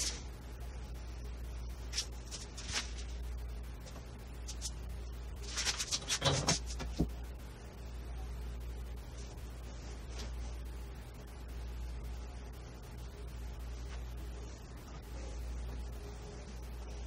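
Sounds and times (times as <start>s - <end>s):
low steady hum: 0.0s - 17.0s
paper rustling on workbench: 1.9s - 3.2s, 5.4s - 7.1s.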